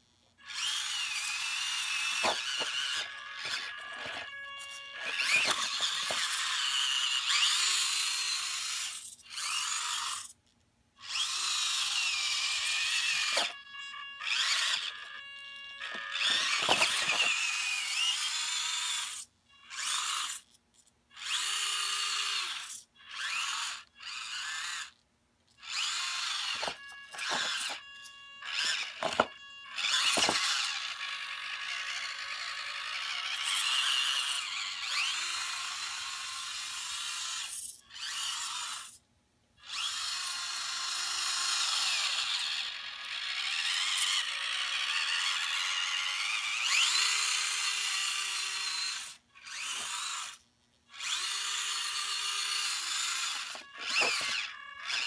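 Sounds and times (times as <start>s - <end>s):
toy truck motor whining: 0.0s - 39.0s, 39.6s - 55.0s.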